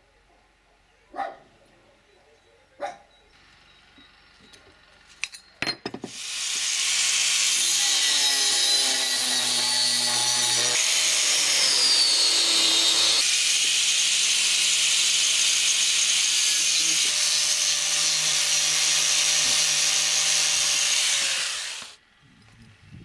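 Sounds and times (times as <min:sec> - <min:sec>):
angle grinder grinding steel: 0:06.1 - 0:22.0.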